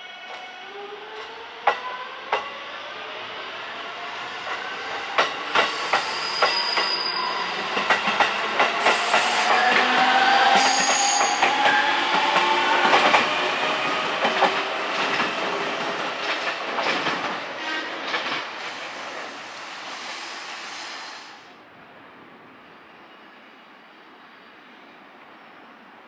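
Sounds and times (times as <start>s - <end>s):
train whine: 0.0s - 21.6s
train wheels clacking over rail joints: 16.2s - 17.4s.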